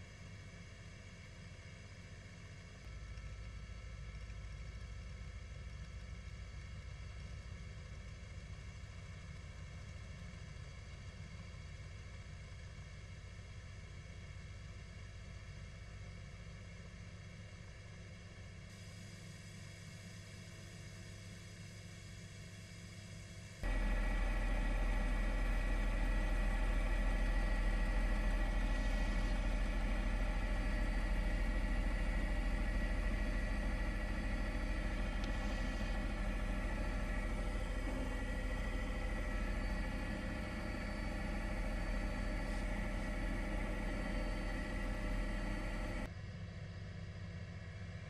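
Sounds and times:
helicopter engine and rotor drone: 0:22.9 - 0:46.4.

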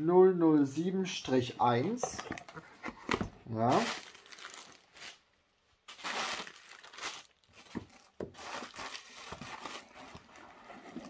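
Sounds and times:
plastic packing crinkling: 0:02.1 - 0:05.2, 0:05.9 - 0:11.0.

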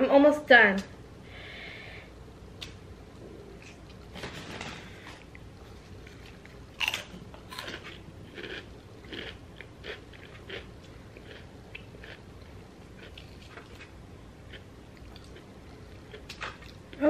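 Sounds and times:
close-up chewing: 0:06.0 - 0:13.9.

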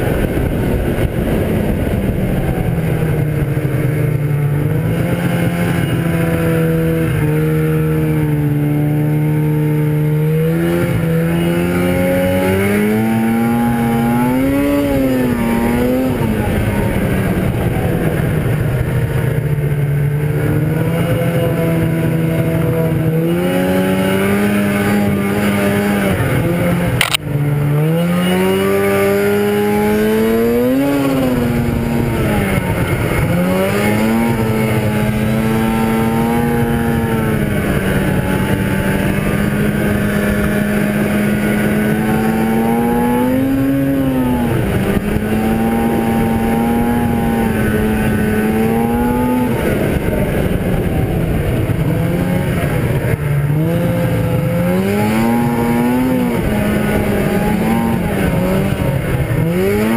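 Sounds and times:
snowmobile engine revving: 0:00.0 - 0:59.9
sharp click: 0:27.0 - 0:27.2.

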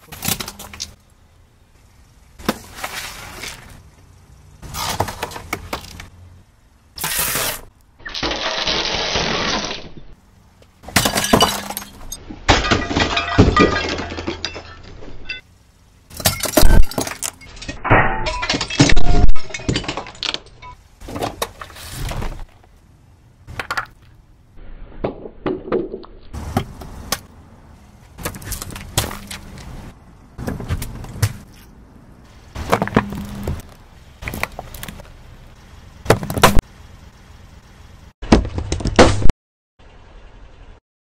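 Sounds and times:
tyre crushing objects: 0:04.6 - 0:06.1, 0:18.4 - 0:22.8, 0:28.1 - 0:31.7, 0:32.5 - 0:35.2.

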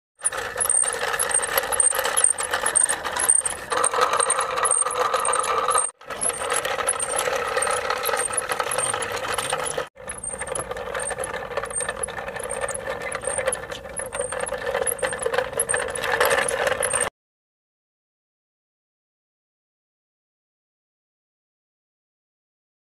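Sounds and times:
toy vehicle whirring and rolling: 0:00.2 - 0:17.1.

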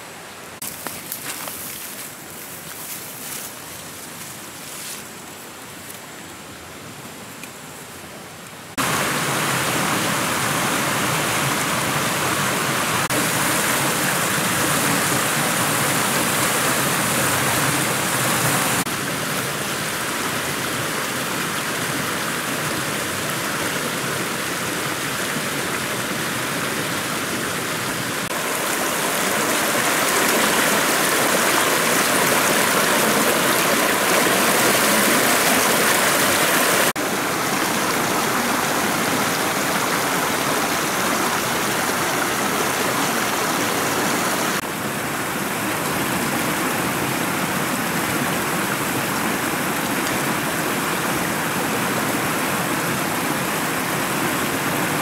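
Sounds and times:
stream pouring over ledge: 0:08.7 - 0:55.0.

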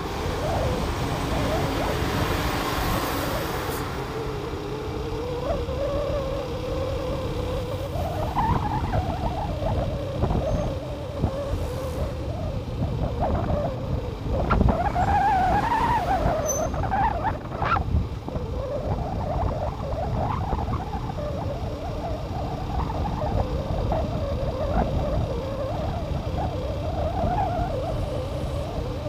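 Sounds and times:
road noise: 0:00.0 - 0:29.0
wind buffeting microphone: 0:00.0 - 0:29.0
wavering whistle: 0:14.7 - 0:17.8.

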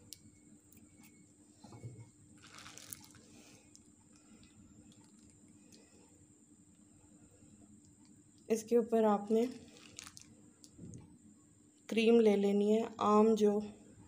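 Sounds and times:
faint steady hum: 0:00.0 - 0:14.0
piping bag rustling and squishing: 0:02.4 - 0:05.6, 0:09.2 - 0:10.8.

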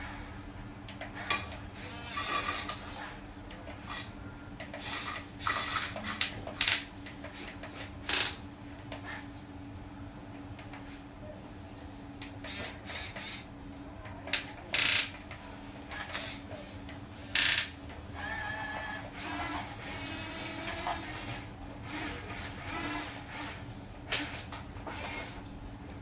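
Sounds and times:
small electric gear motors whining: 0:01.1 - 0:09.3, 0:12.3 - 0:13.5, 0:15.9 - 0:25.4.

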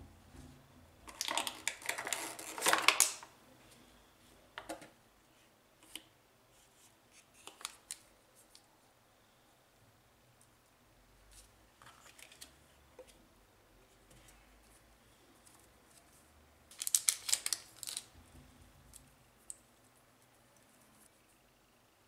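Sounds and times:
plastic tray crinkling: 0:01.1 - 0:03.3, 0:16.7 - 0:18.1.

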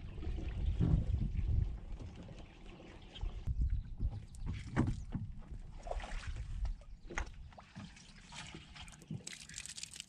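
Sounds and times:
water pouring out of kayak: 0:08.2 - 0:10.0.

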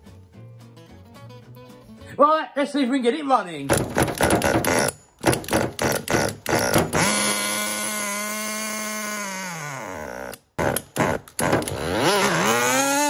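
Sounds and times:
starter cord pulls: 0:03.7 - 0:08.3, 0:10.2 - 0:13.0
small engine buzzing: 0:05.5 - 0:13.0.

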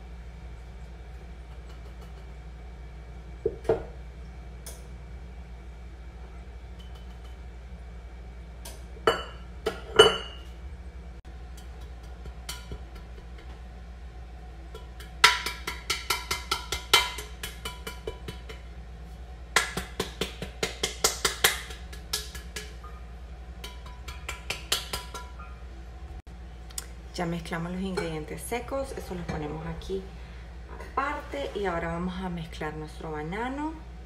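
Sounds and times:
utensil knocking against mixing bowl: 0:14.7 - 0:18.7.

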